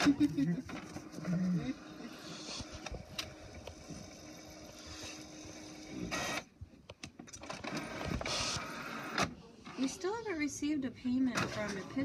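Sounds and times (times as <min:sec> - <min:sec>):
printer whirring: 0:00.0 - 0:06.5, 0:07.3 - 0:10.2.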